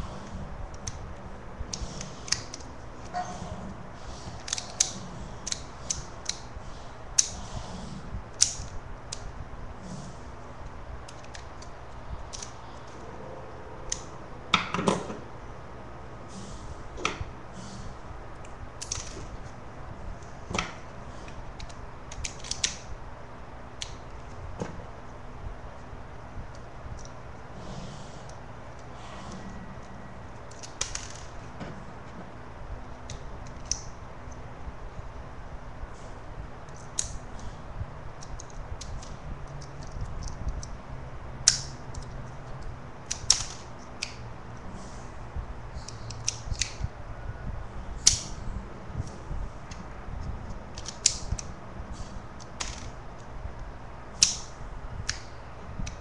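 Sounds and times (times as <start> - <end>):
toy pistol mechanism clicking: 45.9 - 46.8, 50.7 - 51.5.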